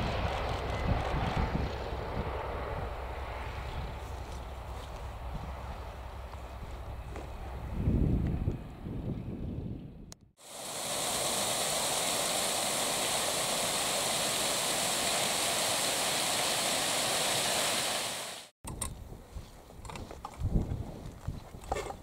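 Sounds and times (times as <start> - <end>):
waterfall rushing splash: 10.4 - 18.5.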